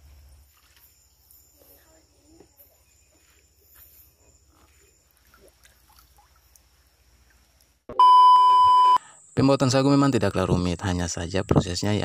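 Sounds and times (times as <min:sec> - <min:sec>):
high insect hum: 0:00.0 - 0:07.9.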